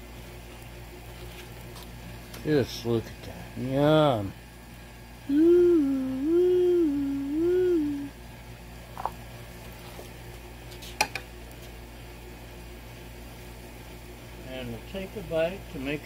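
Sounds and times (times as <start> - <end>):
person humming a tune: 5.3 - 8.2.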